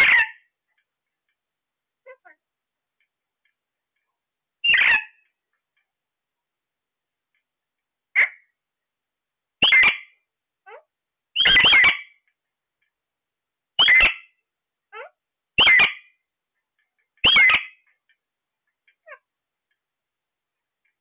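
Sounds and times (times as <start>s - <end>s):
parakeets squawking: 0.0s - 0.4s, 4.6s - 5.2s, 9.6s - 10.1s, 11.4s - 12.2s, 13.8s - 14.3s, 15.0s - 16.1s, 17.2s - 17.8s.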